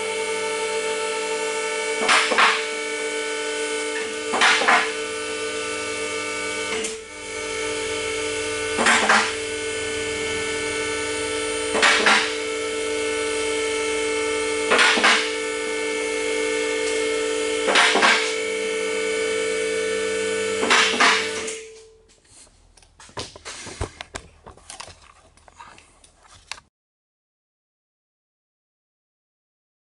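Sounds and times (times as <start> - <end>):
electric motor humming: 0.0 - 21.8.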